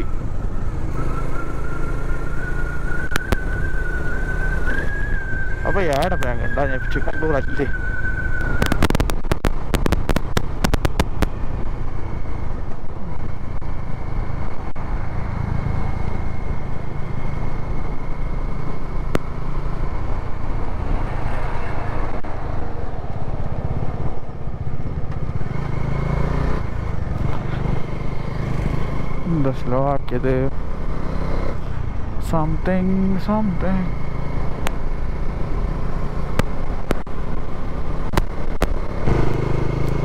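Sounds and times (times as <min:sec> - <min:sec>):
wind and road noise: 0:00.0 - 0:40.0
sharp clicks: 0:03.0 - 0:03.5, 0:08.4 - 0:11.4, 0:36.3 - 0:37.1
motorcycle engine running: 0:07.9 - 0:20.7, 0:22.2 - 0:40.0.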